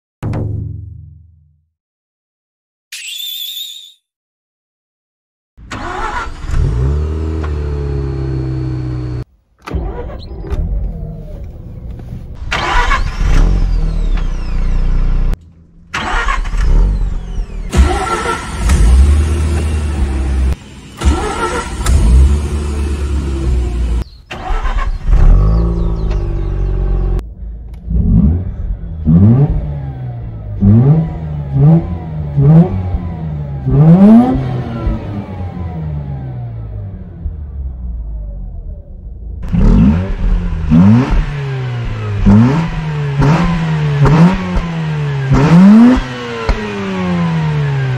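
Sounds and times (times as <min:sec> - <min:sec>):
rotary engine starting and idling: 0:05.6 - 0:31.6
engine revving with throttle blips: 0:05.6 - 0:47.9.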